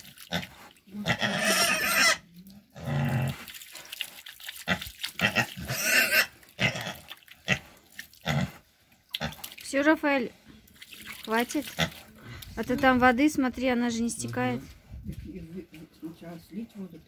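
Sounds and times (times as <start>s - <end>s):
water splashing: 0.0s - 1.0s, 3.3s - 8.4s, 10.6s - 12.8s
pig grunting and squealing: 0.2s - 3.5s, 4.6s - 9.5s.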